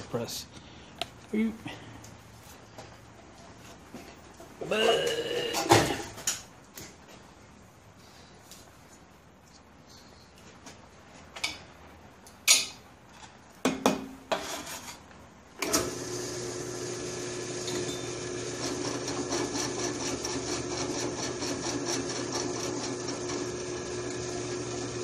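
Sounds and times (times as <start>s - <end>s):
drill press motor humming: 15.6s - 25.0s
drill bit scraping chatter: 17.6s - 25.0s.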